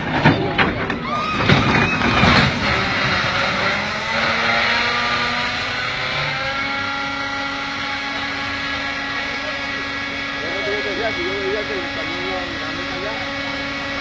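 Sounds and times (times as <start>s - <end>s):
excavator crashing off ramp: 0.0s - 5.2s
diesel engine running: 0.0s - 14.0s
high whine: 0.0s - 14.0s.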